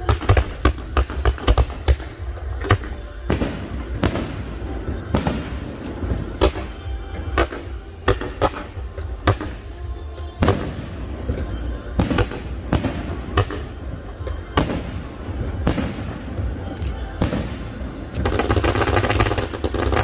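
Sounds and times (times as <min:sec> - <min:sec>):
fireworks bangs echoing: 0:00.0 - 0:20.0.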